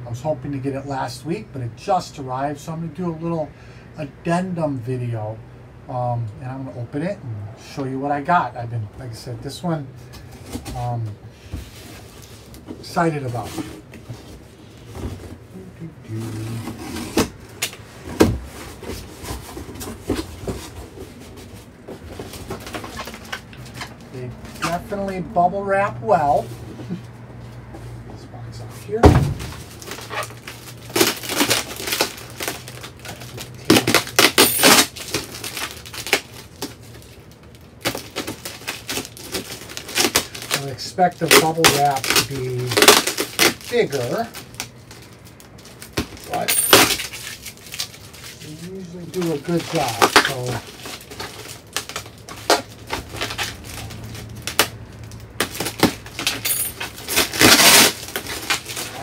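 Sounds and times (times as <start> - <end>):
bubble wrap crinkling and crackling: 10.4 - 27.6, 28.9 - 59.0.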